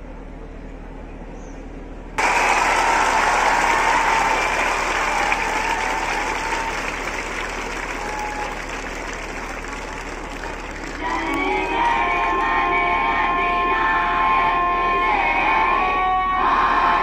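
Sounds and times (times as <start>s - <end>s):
crowd applauding: 2.2s - 12.7s.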